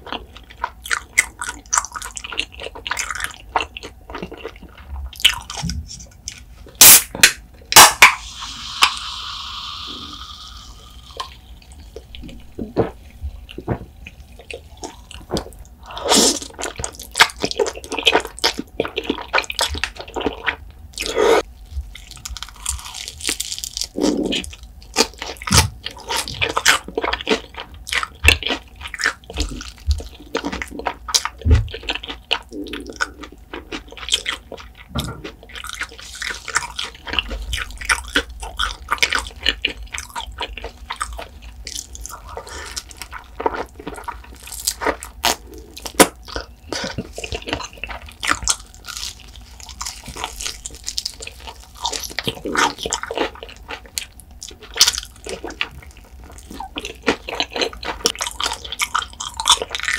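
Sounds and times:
wet chewing of noodles: 0.0 - 7.0, 7.7 - 59.9
hissing slurp: 8.2 - 11.3.

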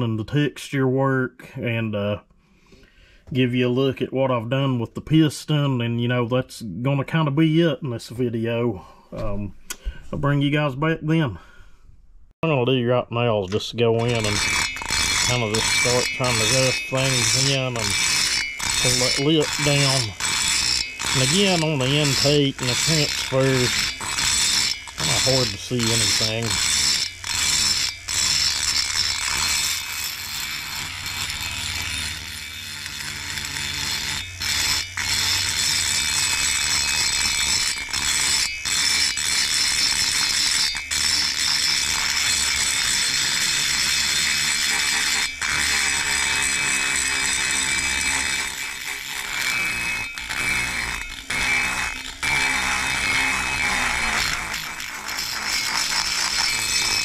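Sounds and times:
rotary grinder rasping metal: 13.2 - 57.0.

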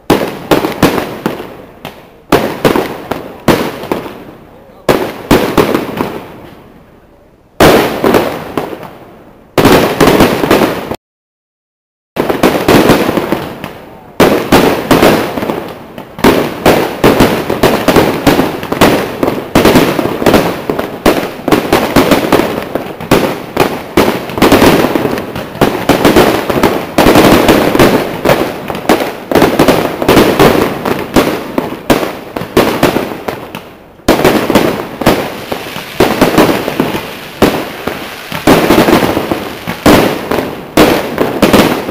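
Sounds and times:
fireworks bursting with bangs and crackles: 0.0 - 11.0, 12.2 - 41.9.

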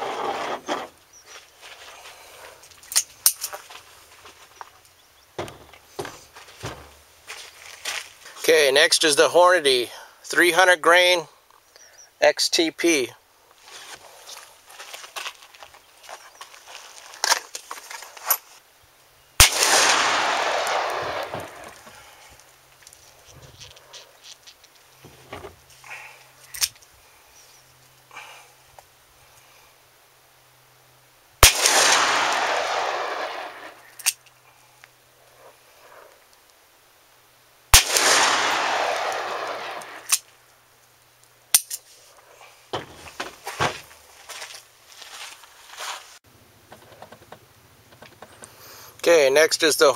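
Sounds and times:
revolver gunshot with echo: 19.4 - 21.7, 31.4 - 33.7, 37.8 - 40.1.

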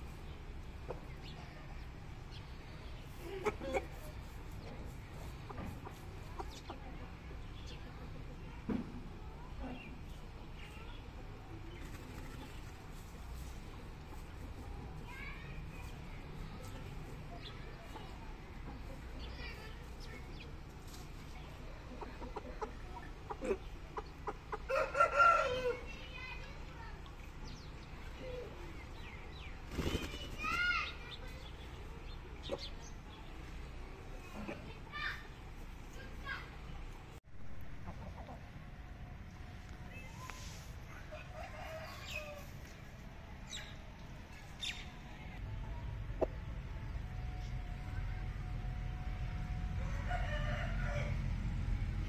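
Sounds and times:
chickens clucking: 0.0 - 1.8, 2.4 - 8.6, 9.4 - 39.1, 39.7 - 47.8
rooster clucking: 3.1 - 6.9, 21.7 - 25.8, 37.7 - 38.5.

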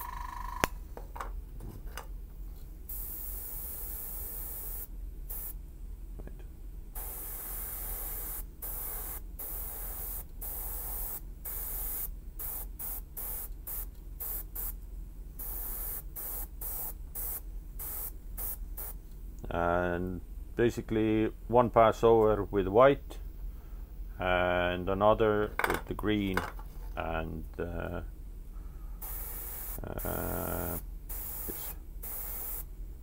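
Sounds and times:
airbrush spraying hiss: 2.8 - 5.6, 7.0 - 14.8, 15.4 - 19.0, 29.0 - 32.8.

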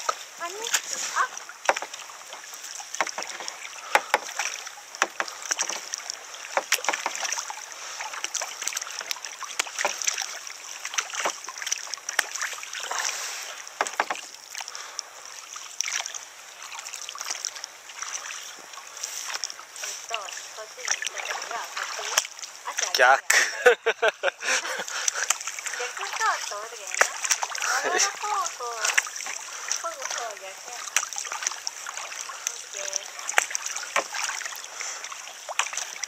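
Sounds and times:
kayak paddles splashing: 0.0 - 36.0
steady high hiss: 22.4 - 24.9.

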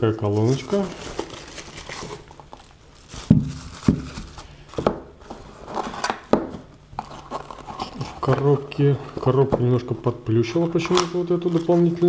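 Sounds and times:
cardboard scraping: 0.3 - 2.6, 3.2 - 9.6.

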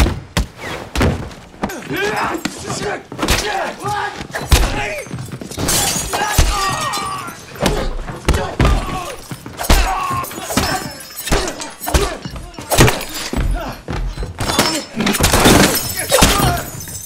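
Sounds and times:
people grunting: 1.6 - 16.9
heavy blows and thuds: 2.8 - 6.8, 7.6 - 16.8
glass shattering: 4.4 - 17.0.

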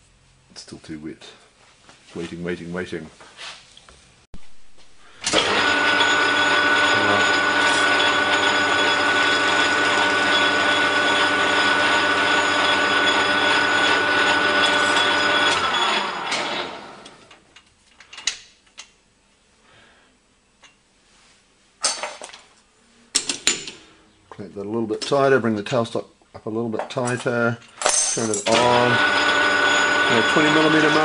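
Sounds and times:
metal lathe whining: 5.2 - 17.3, 28.5 - 31.0.

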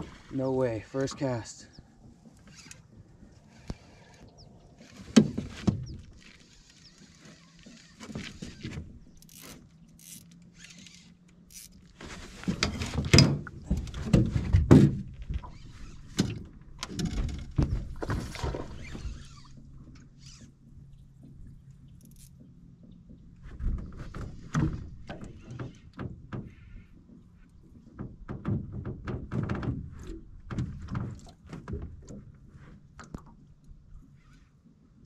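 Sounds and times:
thumps and clatter on boat hull: 5.0 - 6.4, 12.0 - 20.1, 22.3 - 32.4.

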